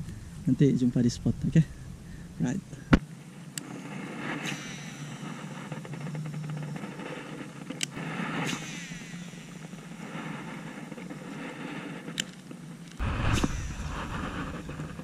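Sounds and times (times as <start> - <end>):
open-air hiss: 0.0 - 15.0
fishing rod swish: 7.9 - 9.8.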